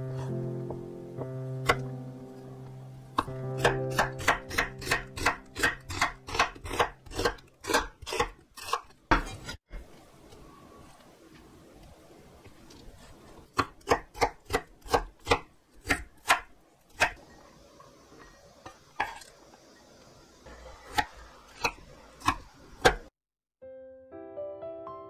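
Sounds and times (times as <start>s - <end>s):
knife chopping on wooden board: 3.2s - 9.6s, 13.6s - 17.2s.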